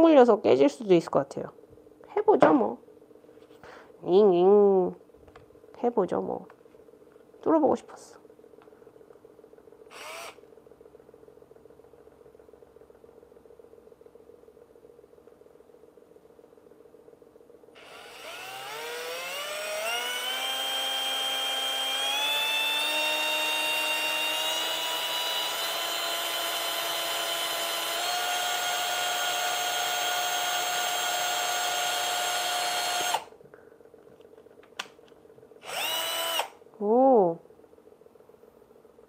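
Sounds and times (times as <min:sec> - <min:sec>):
power drill whining: 0:09.9 - 0:10.4, 0:17.8 - 0:33.3, 0:35.6 - 0:36.6.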